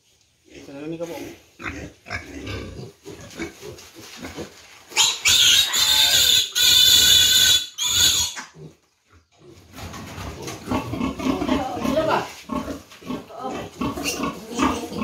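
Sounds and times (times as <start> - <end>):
piglet squealing: 4.9 - 8.6.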